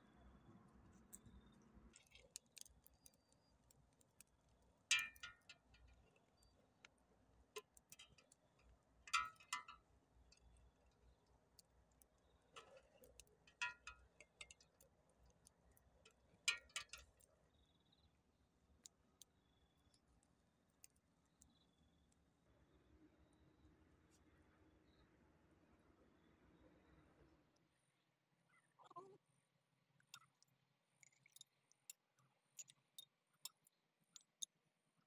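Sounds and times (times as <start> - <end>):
wood fire crackling: 1.9 - 17.3
metal pot and lid clinking: 4.9 - 5.5, 9.1 - 9.8, 13.5 - 14.6, 16.5 - 17.0.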